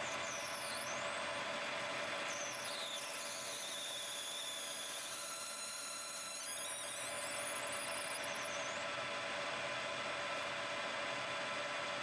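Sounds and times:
drill cutting squeal: 0:00.0 - 0:01.4, 0:02.0 - 0:08.8.

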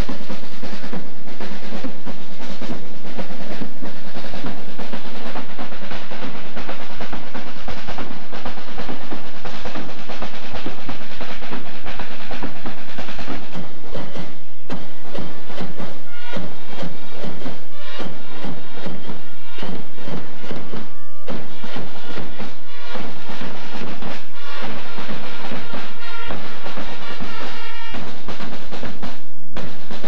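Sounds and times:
marching band drums: 0:00.0 - 0:30.0.

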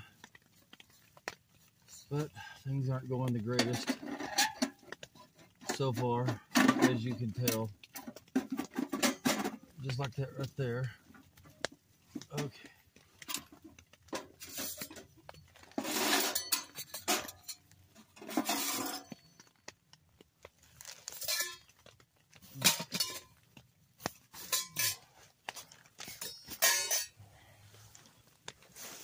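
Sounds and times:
metal parts clinking and scraping: 0:03.5 - 0:09.6, 0:13.2 - 0:19.6, 0:20.8 - 0:23.4, 0:24.0 - 0:27.2.

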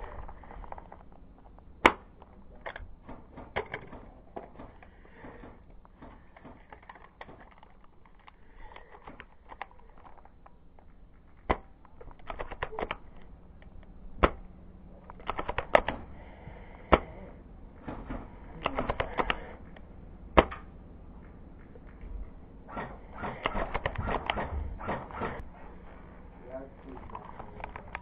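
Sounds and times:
clicks and clatter: 0:00.0 - 0:14.4, 0:26.8 - 0:28.0
airsoft rifle sharp cracks: 0:22.7 - 0:25.4.

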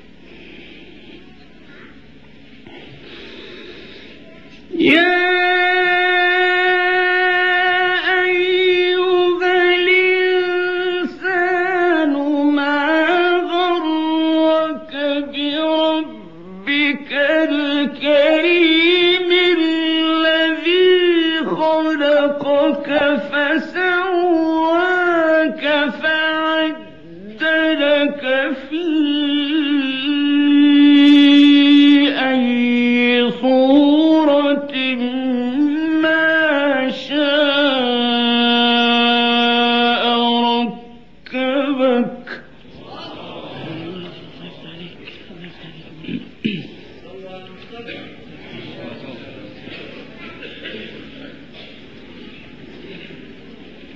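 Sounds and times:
man chanting melodic recitation: 0:04.7 - 0:42.6.

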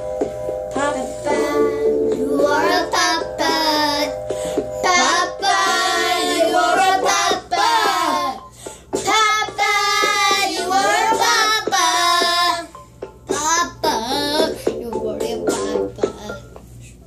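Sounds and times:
children singing: 0:04.9 - 0:08.4.

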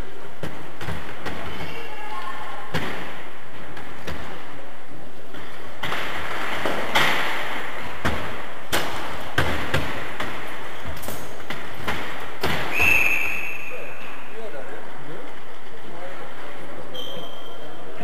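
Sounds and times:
ball thumping against boards: 0:00.4 - 0:01.8, 0:05.3 - 0:13.0.

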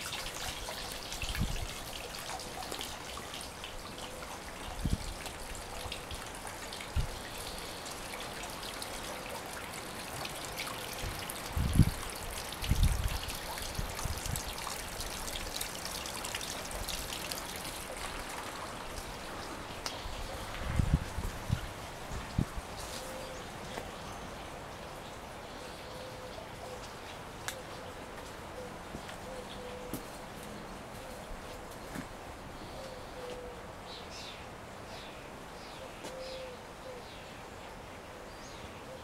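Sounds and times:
fountain water trickling: 0:00.0 - 0:27.4.

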